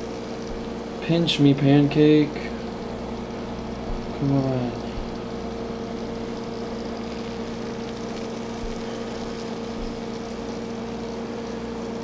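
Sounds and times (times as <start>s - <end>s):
aquarium pumps humming: 0.0s - 12.0s.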